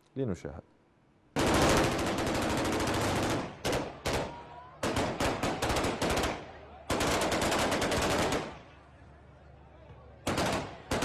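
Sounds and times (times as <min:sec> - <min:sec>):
automatic gunfire bursts: 0:01.4 - 0:08.6, 0:10.3 - 0:11.0.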